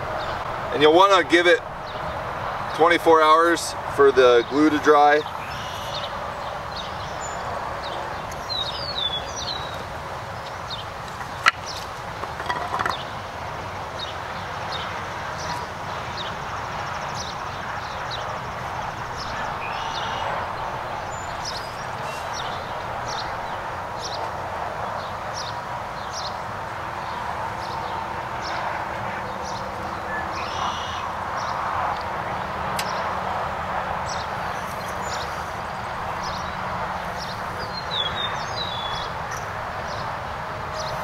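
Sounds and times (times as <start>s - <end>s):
small birds chirping: 4.4s - 13.2s, 13.8s - 28.7s, 29.3s - 33.2s, 34.0s - 41.0s
wooden knock: 12.2s - 13.0s.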